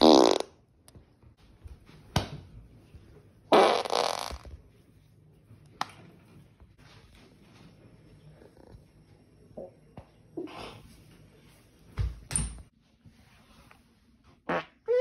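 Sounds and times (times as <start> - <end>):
person farting: 0.0 - 0.6, 3.5 - 4.6, 14.4 - 15.0.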